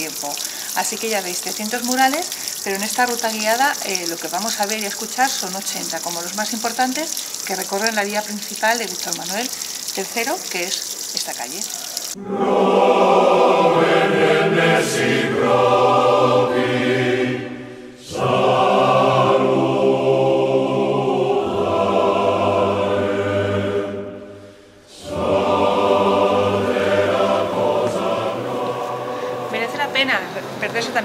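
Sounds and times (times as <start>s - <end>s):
choir singing held chords: 12.2s - 30.7s.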